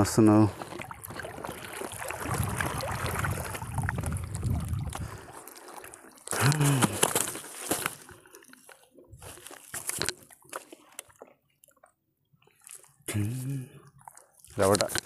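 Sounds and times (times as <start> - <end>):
water splashing and dripping: 0.5 - 11.9
grunt-like voice: 6.4 - 7.0, 13.1 - 13.8.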